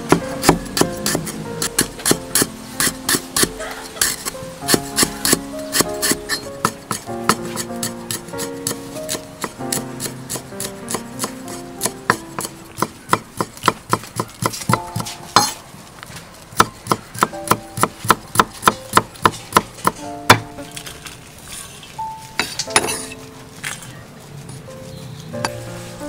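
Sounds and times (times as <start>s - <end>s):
cleaver chopping on wooden board: 0.0s - 15.6s, 16.6s - 20.6s.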